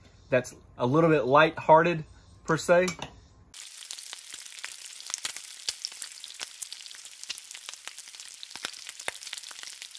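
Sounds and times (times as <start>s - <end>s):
bacon sizzling on a griddle: 3.6s - 9.9s
fat crackling and popping: 3.6s - 9.9s.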